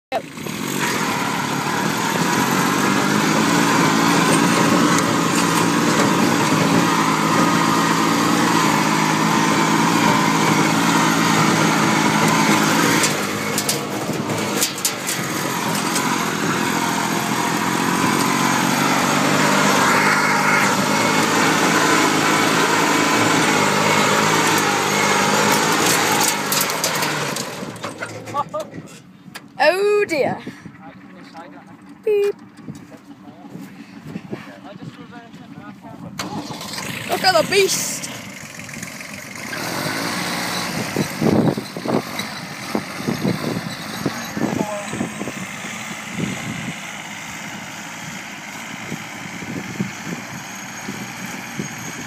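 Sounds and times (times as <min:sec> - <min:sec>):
tractor diesel engine under load: 0:00.0 - 0:52.0
rattles: 0:10.1 - 0:20.0, 0:20.6 - 0:35.5.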